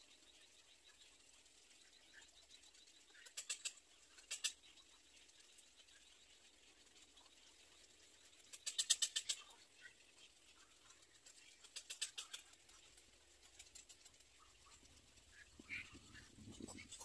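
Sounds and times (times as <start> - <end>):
herons clicking ticks: 3.2 - 4.6, 8.5 - 9.5, 11.0 - 17.0.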